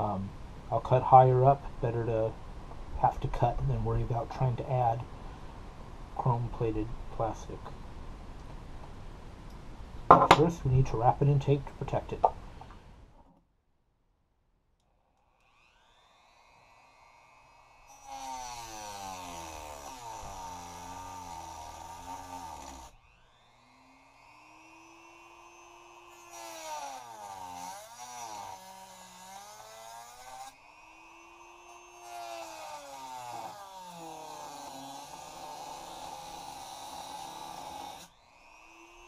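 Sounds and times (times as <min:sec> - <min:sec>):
rotary tool grinding plastic: 0:17.8 - 0:39.0.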